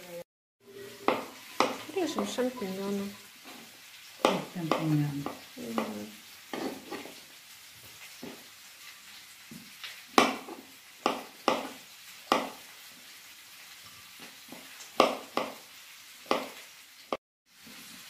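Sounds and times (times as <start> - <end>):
oil sizzling in a pan: 0.0 - 18.0
knife knocking on cutting board: 10.2 - 12.5, 16.3 - 16.5.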